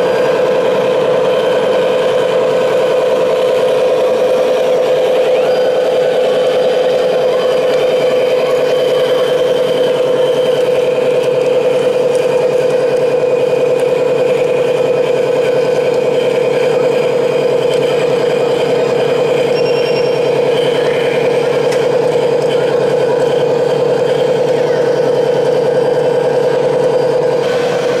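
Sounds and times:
hydraulic pump humming: 0.0s - 28.0s.

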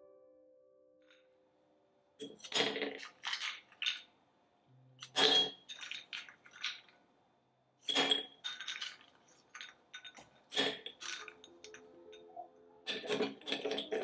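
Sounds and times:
metal server clinking on glass: 5.0s - 6.9s, 7.8s - 11.9s, 12.9s - 14.0s.

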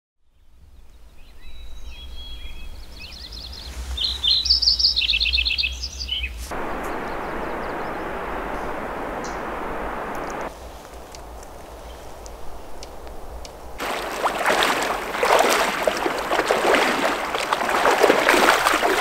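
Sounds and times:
songbirds chirping and trilling: 0.2s - 19.0s
steady rushing hiss: 6.3s - 19.0s
faint low rumble: 6.5s - 19.0s.

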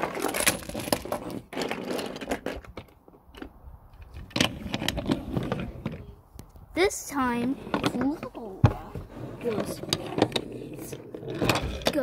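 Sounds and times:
phone handling scrapes and rustles: 7.2s - 12.0s.

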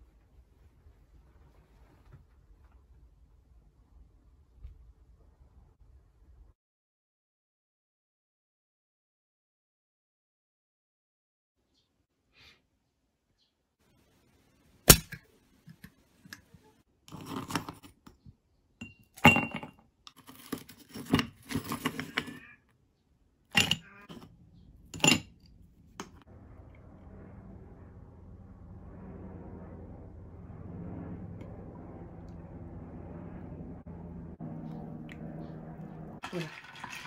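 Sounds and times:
ice cubes clinking in glass: 36.2s - 37.0s
ice rattling: 36.2s - 37.0s.

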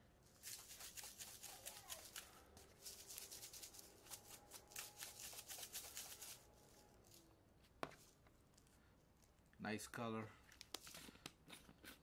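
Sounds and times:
spices rattling in plastic shaker: 0.2s - 6.8s.

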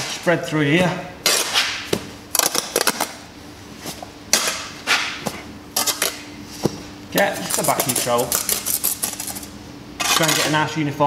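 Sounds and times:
trowel scraping mortar: 7.4s - 8.8s, 10.0s - 10.6s.

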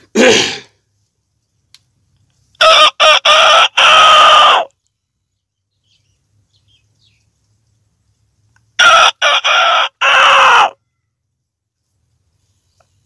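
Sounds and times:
man imitating rooster crow: 2.6s - 4.7s, 8.8s - 10.8s.

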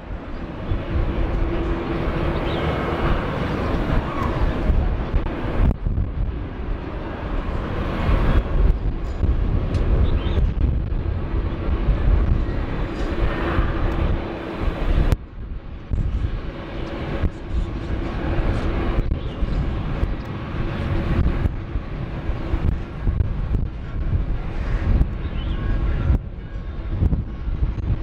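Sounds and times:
jet engines idling: 0.0s - 28.0s.

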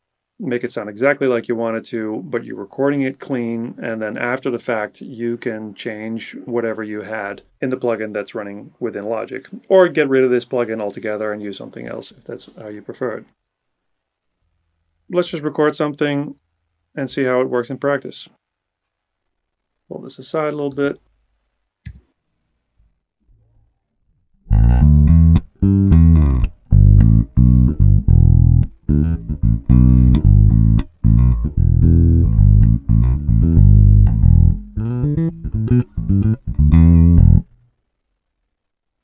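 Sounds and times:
electric bass guitar plucked notes: 24.4s - 37.6s.

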